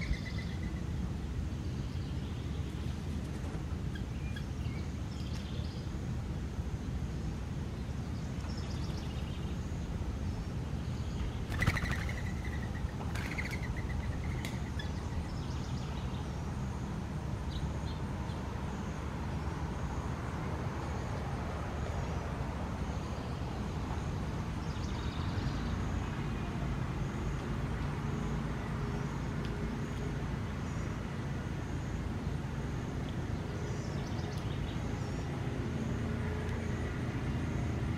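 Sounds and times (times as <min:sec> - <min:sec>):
bird chirps: 0:00.0 - 0:00.9, 0:11.0 - 0:16.2
distant road traffic rumble: 0:00.0 - 0:37.9.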